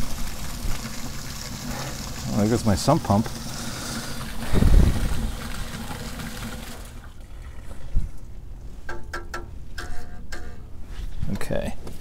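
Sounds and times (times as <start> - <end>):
water gushing from pipe: 0.0 - 8.0.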